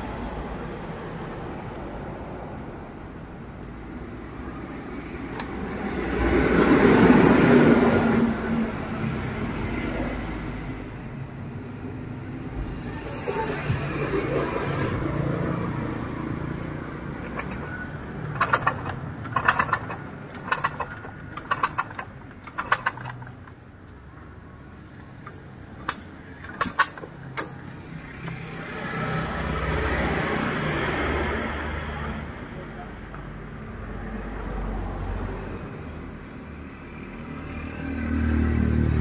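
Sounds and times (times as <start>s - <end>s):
motorcycle kick starter clattering: 16.6s - 23.6s, 25.1s - 28.5s.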